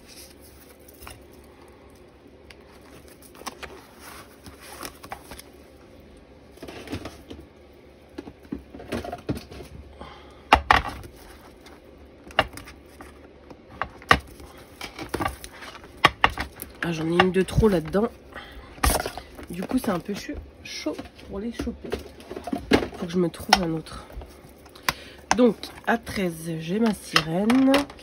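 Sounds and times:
rustling: 0:00.0 - 0:07.4
plastic cases clacking: 0:10.5 - 0:18.1, 0:18.8 - 0:28.0.

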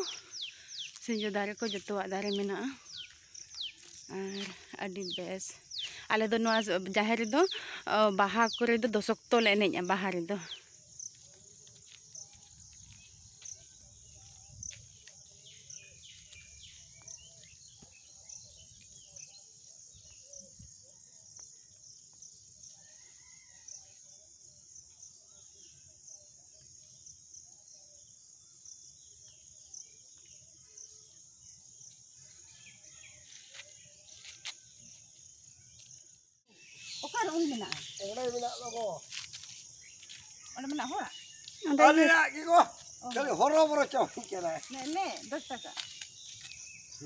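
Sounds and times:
bird chirps and calls: 0:00.0 - 0:10.8, 0:36.5 - 0:41.9.

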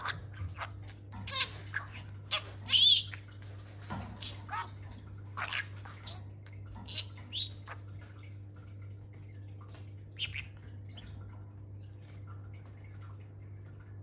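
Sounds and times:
budgerigar chirping: 0:00.0 - 0:03.2, 0:10.2 - 0:10.6.

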